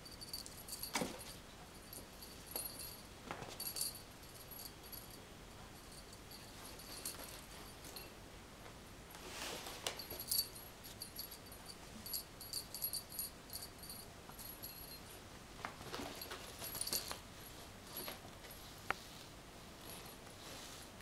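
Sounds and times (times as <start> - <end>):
jingle bell tinkling: 0.0 - 5.2, 5.8 - 8.1, 10.0 - 15.2, 16.1 - 18.7.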